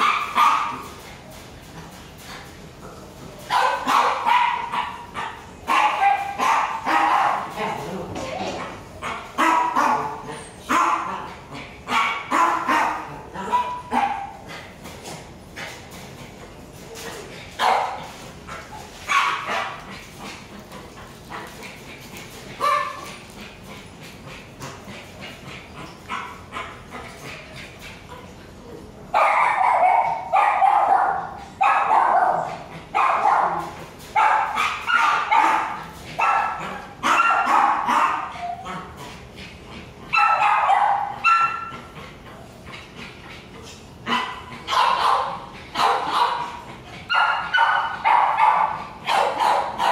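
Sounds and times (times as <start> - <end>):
puppy barking and yipping: 0.0 - 0.9, 3.5 - 7.6, 34.2 - 38.8, 40.1 - 41.7, 44.1 - 49.9.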